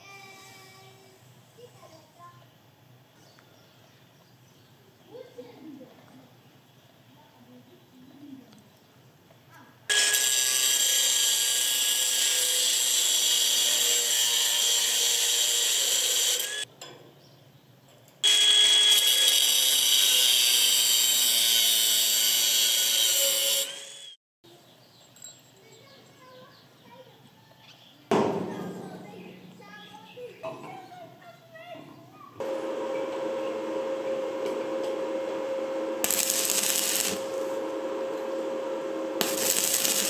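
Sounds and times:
cut-off disc cutting metal rod: 9.9 - 16.6, 18.2 - 24.2, 33.5 - 40.0.

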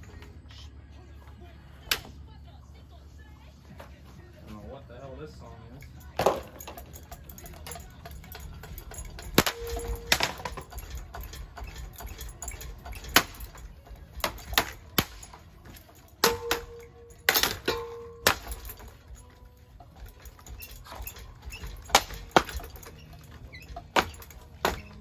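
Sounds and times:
short metallic ring: 5.8 - 25.0.

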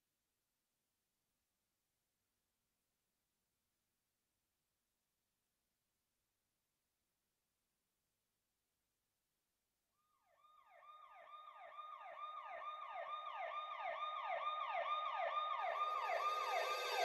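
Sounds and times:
emergency vehicle siren: 10.5 - 17.0.

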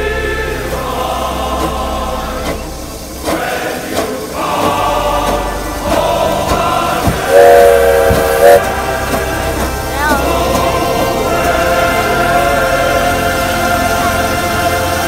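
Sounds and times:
choir music: 0.0 - 15.0
steam locomotive whistle blast: 7.2 - 8.7.

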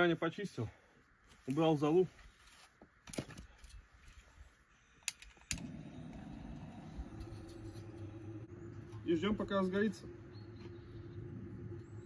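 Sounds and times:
gas torch roaring: 5.5 - 12.0.

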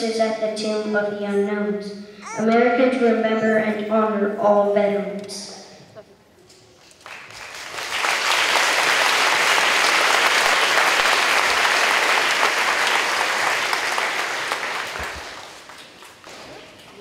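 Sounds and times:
audience applause: 6.8 - 17.0.

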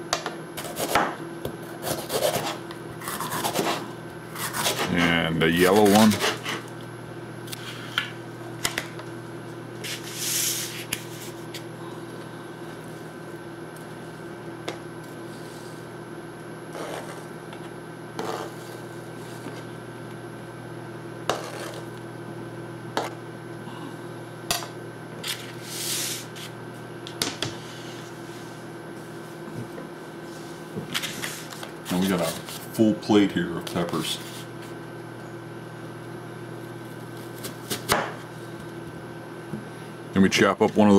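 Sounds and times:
faint steady hum: 0.0 - 40.9
knife scraping across board: 1.8 - 5.1, 5.7 - 6.7, 16.7 - 17.3, 18.2 - 19.6, 21.3 - 21.9.

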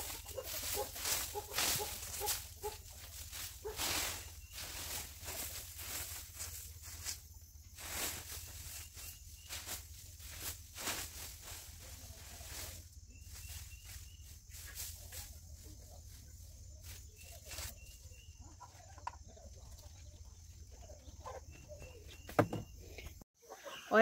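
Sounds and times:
rustling: 0.0 - 22.3
knock: 22.3 - 22.7.

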